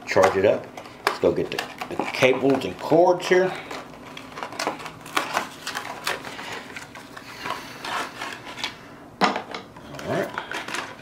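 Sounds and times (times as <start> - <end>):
power cords rustling on plastic: 0.1 - 8.8.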